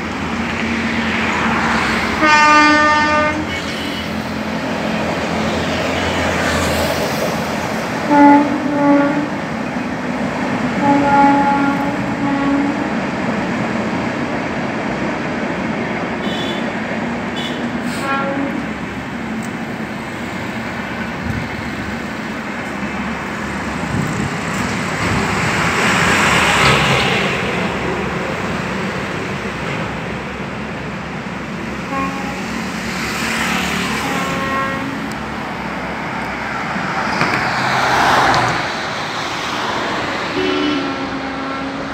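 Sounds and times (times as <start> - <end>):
road traffic: 0.0 - 41.9
vehicles passing: 0.0 - 41.9
horn toots: 10.8 - 12.9, 34.0 - 35.1, 40.4 - 41.9.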